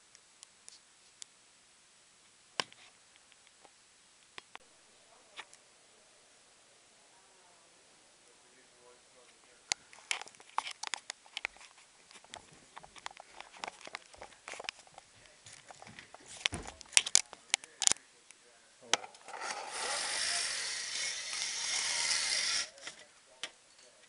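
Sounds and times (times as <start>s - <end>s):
steady rushing hiss: 0.0s - 23.3s
footsteps on hard floor: 14.2s - 16.9s.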